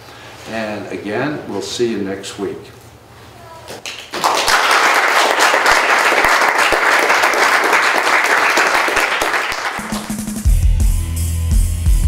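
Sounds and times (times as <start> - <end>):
audience applauding: 3.8 - 10.4
music: 9.8 - 12.0.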